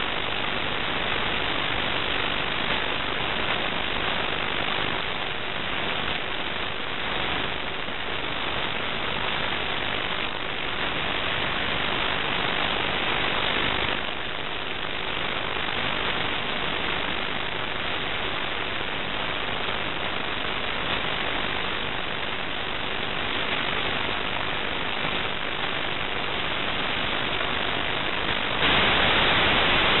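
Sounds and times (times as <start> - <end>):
steady rushing hiss: 0.0 - 30.0
video signal interference: 0.0 - 30.0.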